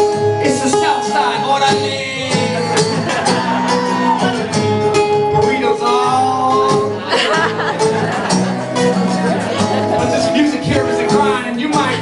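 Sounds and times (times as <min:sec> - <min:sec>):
guitar strumming: 0:00.0 - 0:12.0
person singing: 0:05.2 - 0:07.5, 0:08.6 - 0:12.0.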